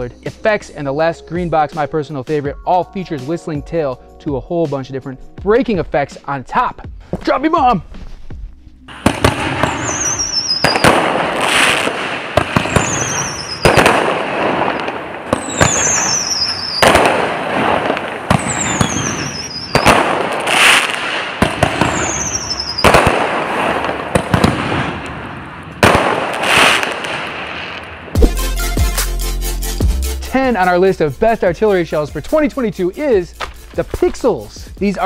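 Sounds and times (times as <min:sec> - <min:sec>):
firework bangs: 0:08.9 - 0:28.4
firework crackling: 0:08.9 - 0:28.6
falling whistles: 0:09.6 - 0:10.9, 0:12.7 - 0:13.8, 0:15.4 - 0:16.9, 0:18.4 - 0:19.9, 0:21.9 - 0:22.9.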